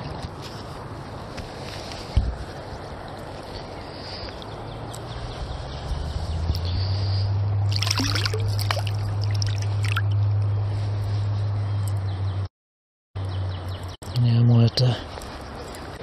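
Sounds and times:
water trickling and sloshing: 7.6s - 10.9s.

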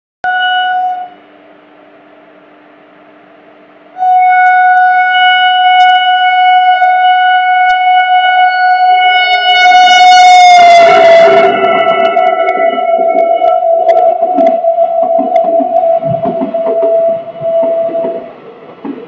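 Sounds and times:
train horn long blast: 0.2s - 18.4s
train clatter: 9.3s - 19.0s.

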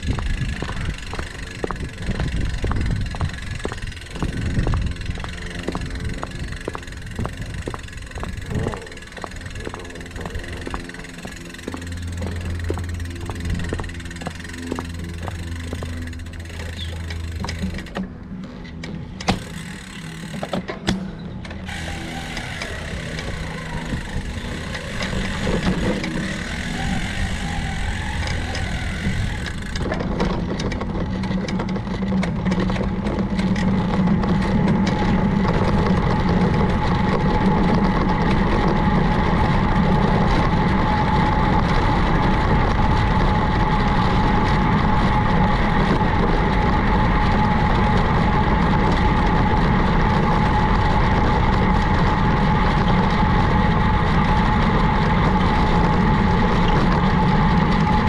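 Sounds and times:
bicycle road noise: 0.0s - 58.0s
constant whine: 0.0s - 58.0s.

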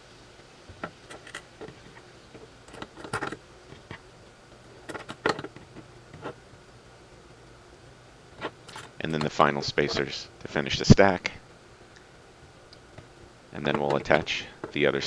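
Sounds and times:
small metal parts clicking: 0.8s - 4.0s, 8.4s - 9.4s.

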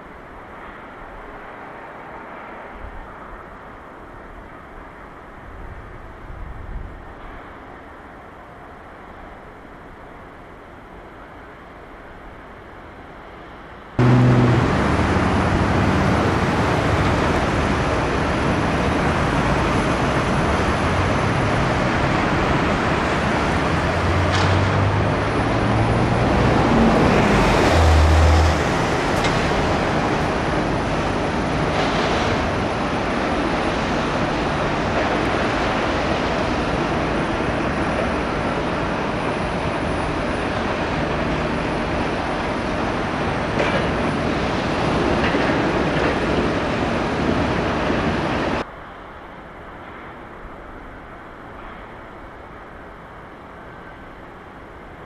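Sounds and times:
traffic or machinery noise: 0.0s - 55.0s
low hums shifting in pitch: 14.0s - 17.0s.

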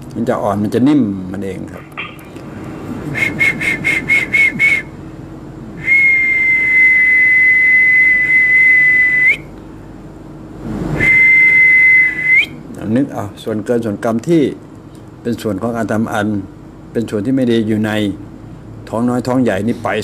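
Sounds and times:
person whistling: 3.1s - 4.9s, 5.8s - 9.5s, 11.0s - 12.6s.

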